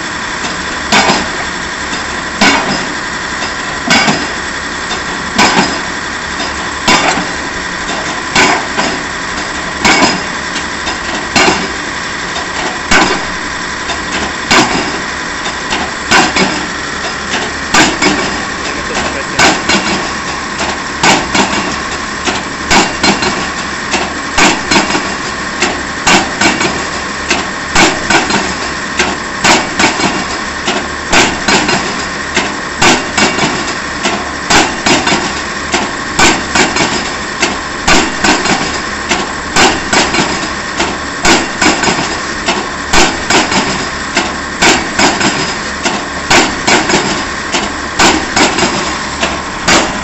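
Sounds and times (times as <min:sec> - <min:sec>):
rig engine running: 0:00.0 - 0:50.0
pile hammer heavy blows: 0:02.4 - 0:02.9, 0:05.3 - 0:09.0, 0:09.8 - 0:10.3, 0:12.6 - 0:13.4, 0:14.1 - 0:15.0, 0:17.3 - 0:50.0.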